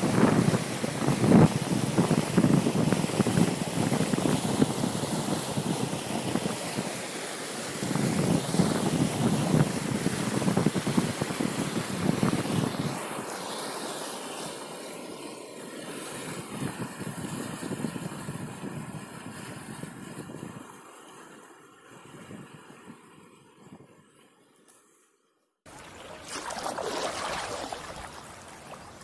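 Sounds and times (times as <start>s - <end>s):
wind buffeting microphone: 0.0s - 6.6s, 7.8s - 13.0s, 16.3s - 20.8s
paddle strokes splashing water: 25.7s - 29.0s.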